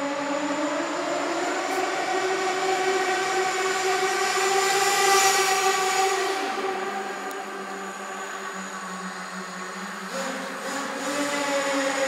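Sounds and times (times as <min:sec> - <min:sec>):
rc car engine screaming: 0:09.8 - 0:12.0.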